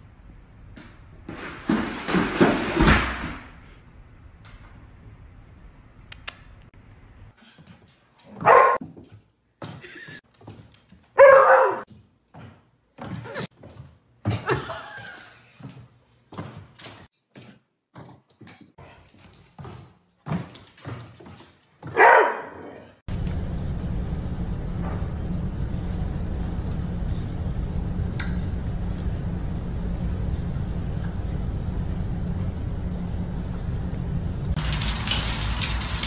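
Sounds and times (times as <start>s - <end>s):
dog paws on hardwood floor: 7.4s - 22.3s
dog barking: 8.4s - 8.8s, 11.2s - 11.8s, 21.9s - 22.9s
low rumble: 23.1s - 34.6s.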